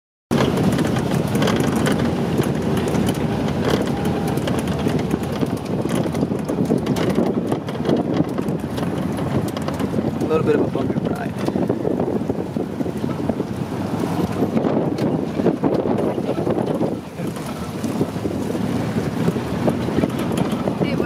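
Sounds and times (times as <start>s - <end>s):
metal frame rattling: 0.3s - 10.4s
truck engine and tyres: 0.3s - 21.0s.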